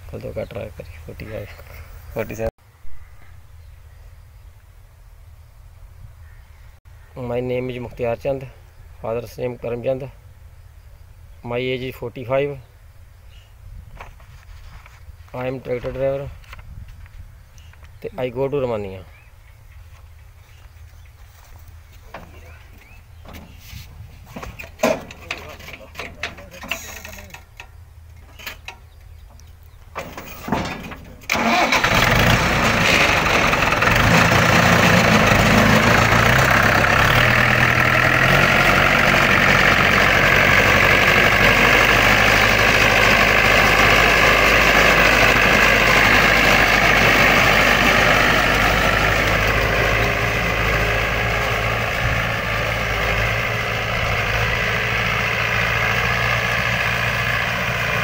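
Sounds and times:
tractor diesel engine running: 20.1s - 58.0s.

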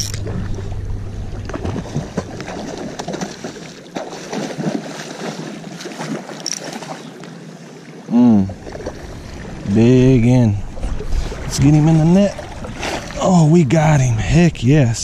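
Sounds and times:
fishing rod and reel clicks: 0.0s - 0.3s, 6.4s - 6.7s
fish splashing: 0.0s - 9.6s.

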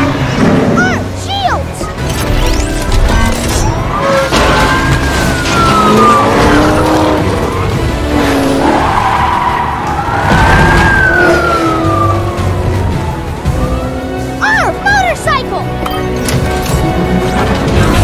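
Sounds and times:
action music: 0.0s - 18.0s
car speeding and skidding: 3.7s - 14.4s
siren whine rising and falling: 4.1s - 7.2s, 9.9s - 14.2s.

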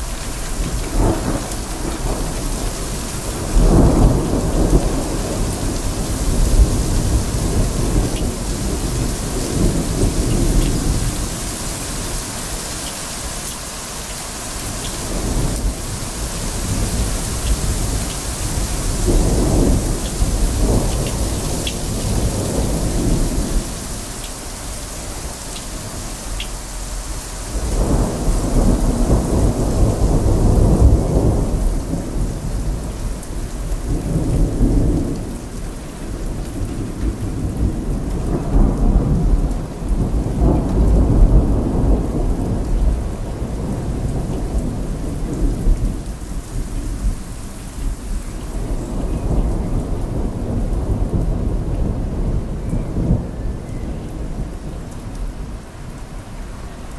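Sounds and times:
thunder rolling: 0.0s - 12.4s, 14.7s - 26.1s, 26.7s - 35.5s
heavy rain: 0.0s - 56.9s.

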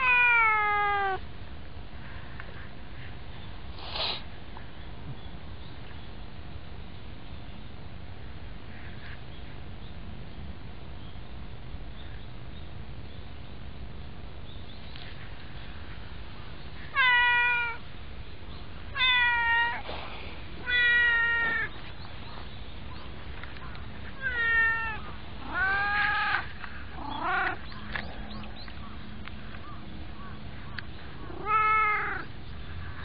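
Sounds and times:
cat meowing: 0.0s - 1.2s, 16.9s - 17.8s, 18.9s - 19.8s, 20.6s - 21.7s, 24.2s - 27.6s, 31.2s - 32.3s.

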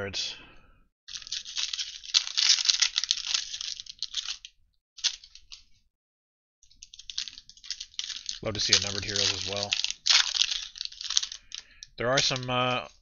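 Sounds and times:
foil wrapper crinkling and tearing: 1.1s - 5.6s, 6.8s - 12.5s.

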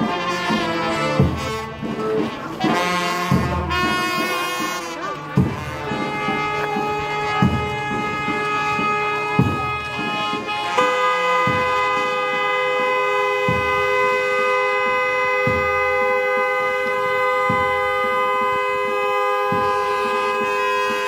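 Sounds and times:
low drum beat: 0.0s - 21.0s
car horns two-tone blast: 5.6s - 21.0s.

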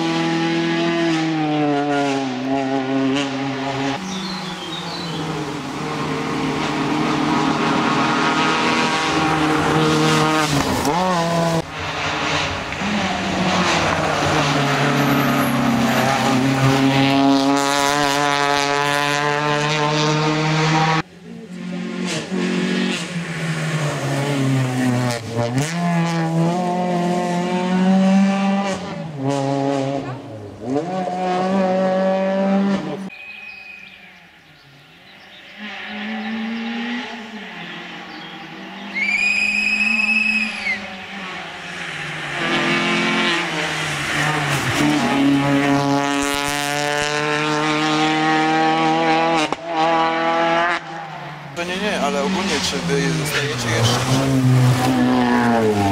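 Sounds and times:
rally car engine revving: 0.0s - 33.1s, 35.1s - 55.9s
tyre squeal: 38.8s - 41.0s.

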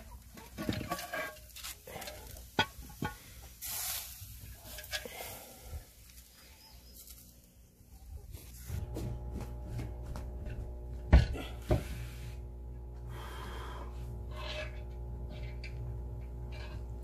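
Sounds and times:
steady low hum: 7.1s - 17.0s
scuffing and handling sounds: 8.2s - 11.0s.

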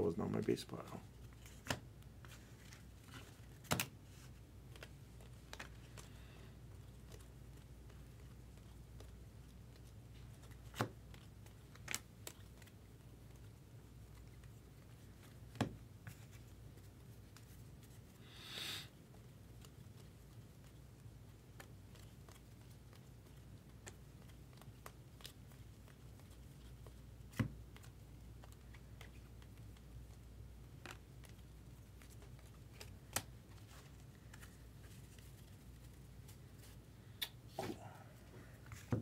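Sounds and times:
low room hum: 0.0s - 39.0s
cards sliding: 1.3s - 6.2s.

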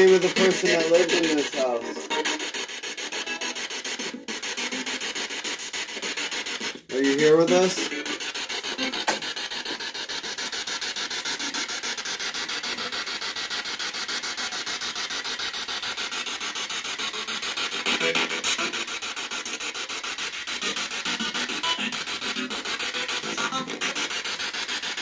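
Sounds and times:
pulsing radio static: 0.0s - 5.4s, 6.0s - 9.2s, 17.7s - 19.3s, 20.5s - 24.1s.

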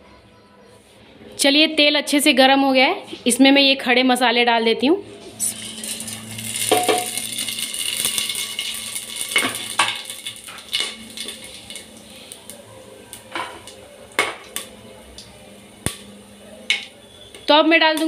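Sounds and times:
spices sizzling in hot oil: 5.4s - 18.0s
crackles and pops: 5.8s - 16.1s.

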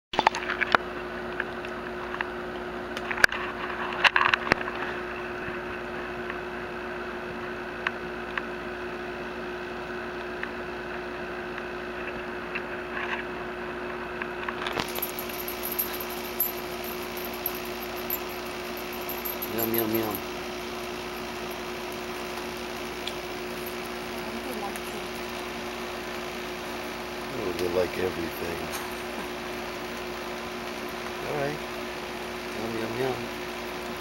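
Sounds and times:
low hum: 14.6s - 29.5s
metal collar tag clinking: 14.7s - 22.3s, 22.9s - 24.5s.

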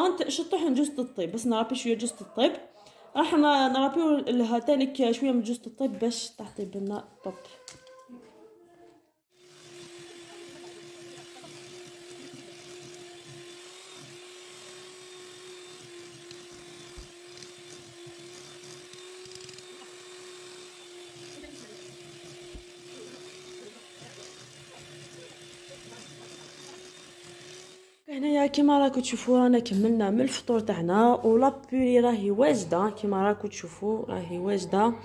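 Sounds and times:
electric hand mixer whisking: 9.3s - 28.1s.

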